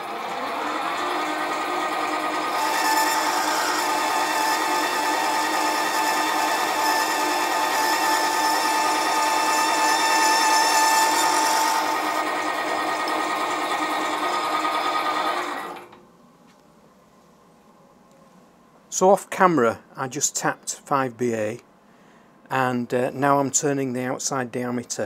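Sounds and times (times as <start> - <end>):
lathe motor whine: 0.0 - 16.0
boring bar scraping metal: 0.6 - 12.3.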